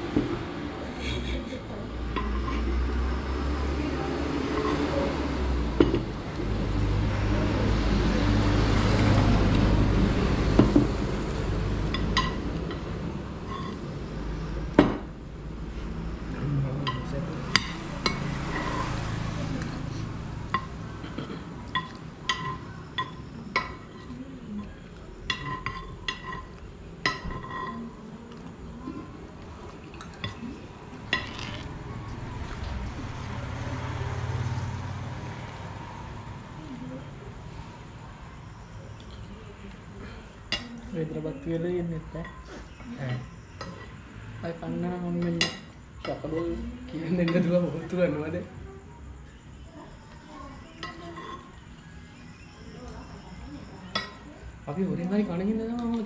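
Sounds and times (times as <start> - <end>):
passing vehicle engine hum: 0.0 - 55.6
road traffic rumble: 0.0 - 56.0
plates and cutlery clinking: 1.4 - 2.8, 4.4 - 6.8, 11.7 - 14.0, 16.8 - 19.2, 20.4 - 28.0, 29.9 - 31.7, 43.6 - 44.0, 50.8 - 51.6.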